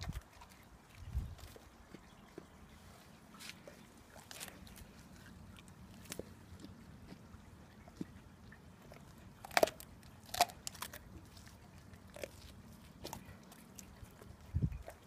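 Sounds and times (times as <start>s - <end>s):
dog teeth crunching prawn shell: 9.4s - 14.0s.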